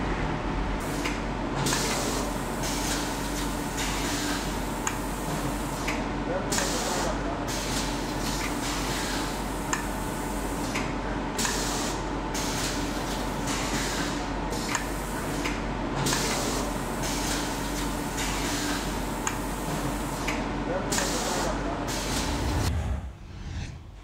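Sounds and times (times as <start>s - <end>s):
machine hum: 21.8s - 24.0s.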